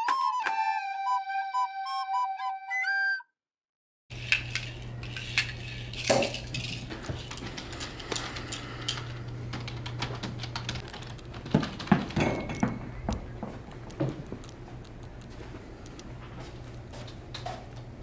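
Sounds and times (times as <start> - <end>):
steady low hum: 4.1 - 18.0
hard objects clicking and clinking: 4.2 - 13.1.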